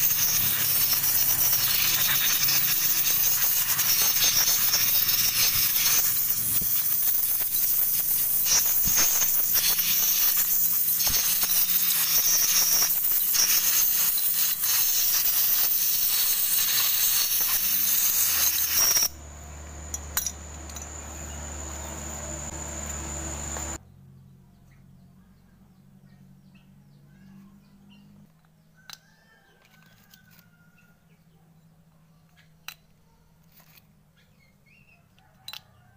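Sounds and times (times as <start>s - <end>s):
loud steady hiss: 0.0s - 23.8s
thin high whine: 0.0s - 23.8s
low hum: 19.1s - 24.5s.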